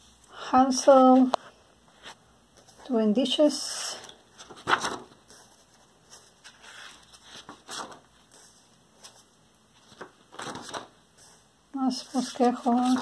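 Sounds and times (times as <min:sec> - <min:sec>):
paper pages rustling: 0:04.0 - 0:11.4, 0:12.0 - 0:13.0.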